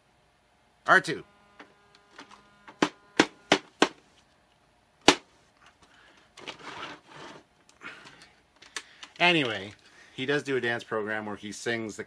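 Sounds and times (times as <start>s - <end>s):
rustling handling noise: 5.4s - 10.1s.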